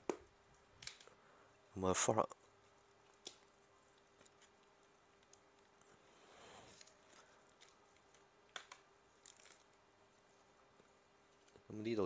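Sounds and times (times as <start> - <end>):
plastic sleeve rustling: 2.5 - 11.7.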